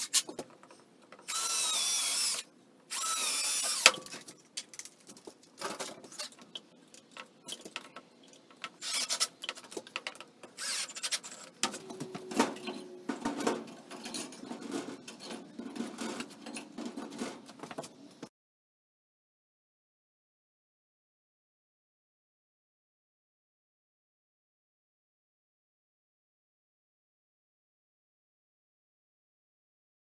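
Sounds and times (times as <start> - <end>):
cordless drill driving a screw: 1.3 - 3.9, 8.8 - 9.3, 10.6 - 11.4
tools and box being set down: 11.6 - 17.9.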